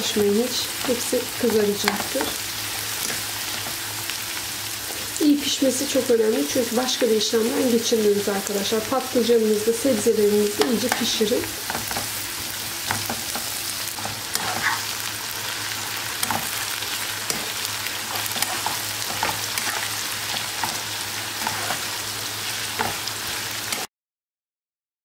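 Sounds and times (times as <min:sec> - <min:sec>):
vegetables sizzling in hot oil: 0:00.0 - 0:23.9
metal spoon scraping pan: 0:12.8 - 0:15.0, 0:16.2 - 0:20.8, 0:21.4 - 0:21.9.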